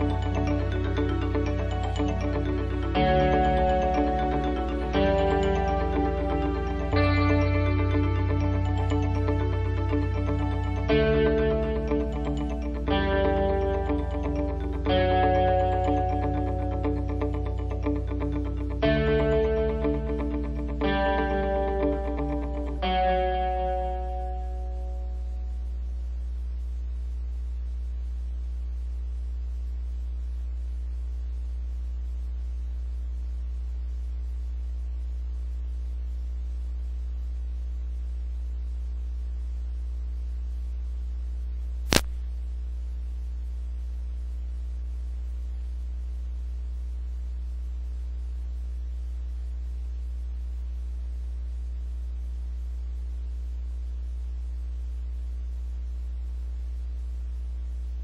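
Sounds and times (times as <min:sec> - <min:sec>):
low electrical mains hum: 0:00.0 - 0:58.0
sharp click: 0:41.9 - 0:42.2.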